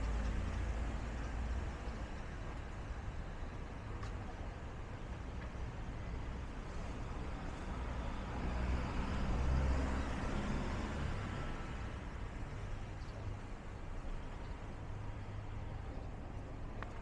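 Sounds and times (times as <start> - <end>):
city street noise: 0.0 - 17.0
vehicle engine rumble passing: 6.8 - 12.8.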